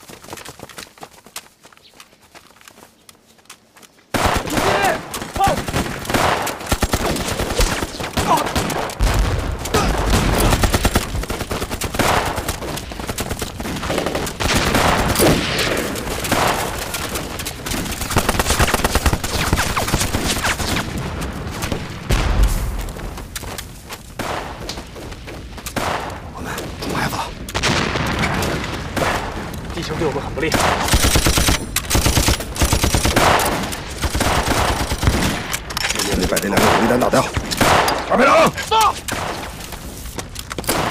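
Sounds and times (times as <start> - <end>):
rifle shots: 4.1 - 20.9, 30.4 - 38.2
machine-gun bursts: 16.3 - 20.7, 30.8 - 36.9.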